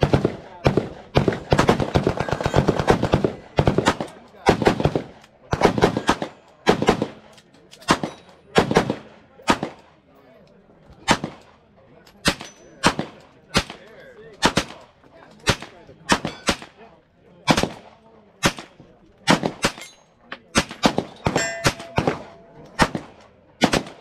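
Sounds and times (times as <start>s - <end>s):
gunshots with short echo: 20.5s - 24.0s.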